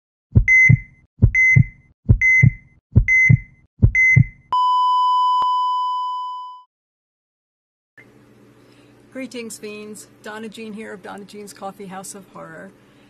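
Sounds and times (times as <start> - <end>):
heartbeat thumps: 0.3 - 4.4
heart monitor beep: 0.4 - 6.6.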